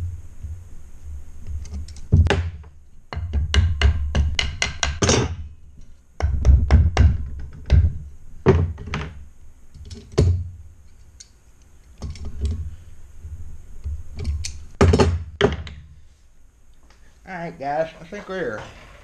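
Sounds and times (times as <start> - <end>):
wooden block knocking on motor: 2.1 - 5.4, 6.2 - 9.2.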